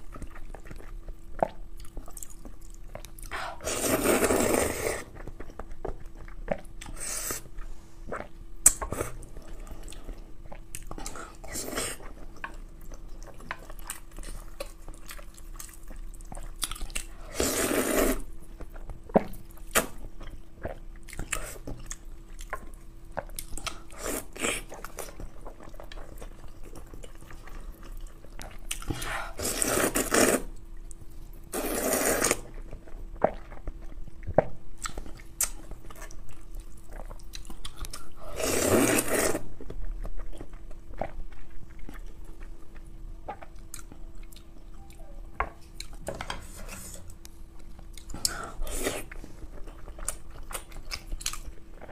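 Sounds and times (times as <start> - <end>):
person chewing noodles: 0.0 - 51.9.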